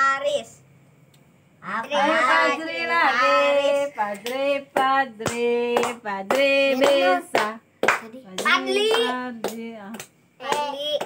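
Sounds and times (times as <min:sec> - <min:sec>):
hand claps: 0:04.1 - 0:11.0.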